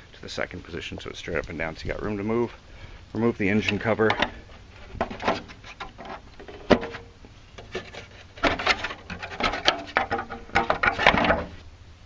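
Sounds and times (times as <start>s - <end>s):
clattering and rubbing knocks: 3.6s - 11.6s.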